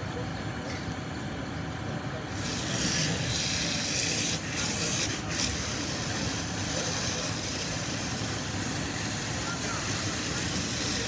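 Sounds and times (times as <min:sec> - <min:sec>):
water spray hissing: 0:02.4 - 0:11.0.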